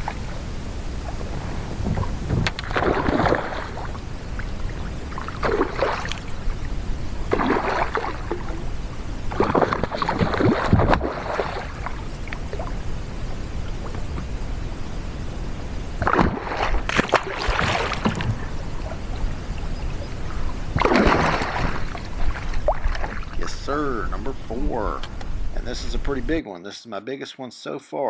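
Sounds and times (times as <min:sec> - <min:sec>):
fish splashing and thrashing: 0:01.0 - 0:14.4, 0:16.0 - 0:23.6.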